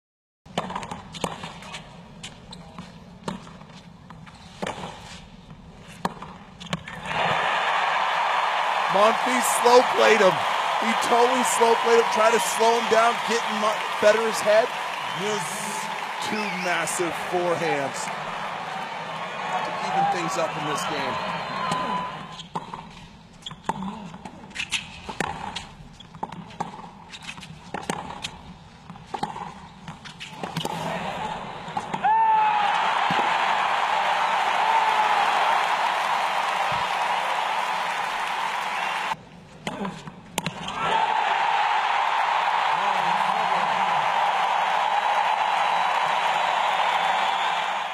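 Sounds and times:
tennis ball bouncing on court: 0.6s - 1.8s, 6.0s - 7.0s, 22.4s - 30.8s, 39.6s - 40.7s
crowd cheering and applause: 7.0s - 22.3s, 31.9s - 39.2s, 40.7s - 47.9s.

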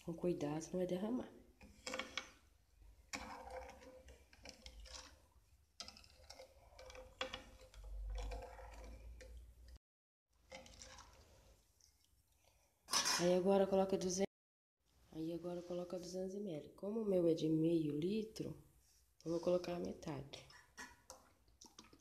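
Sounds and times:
liquid sloshing: 1.4s - 13.4s, 20.5s - 22.0s.

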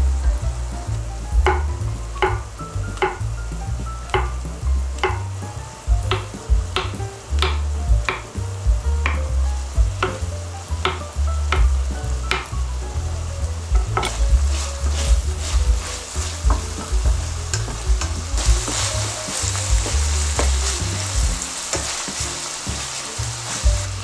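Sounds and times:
food sizzling in a pan: 0.0s - 24.0s
spatula scraping and knocking: 13.8s - 23.9s.

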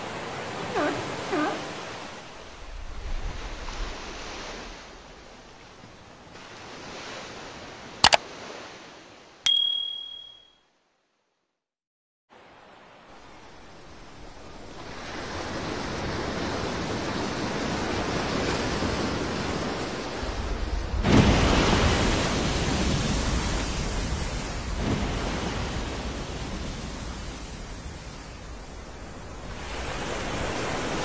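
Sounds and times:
sea: 0.0s - 10.4s, 12.3s - 31.0s
wind on microphone: 2.4s - 5.5s.

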